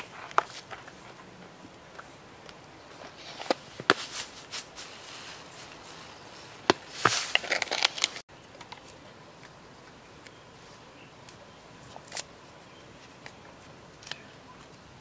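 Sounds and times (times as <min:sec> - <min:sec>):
crinkly rustles: 0:02.8 - 0:09.5.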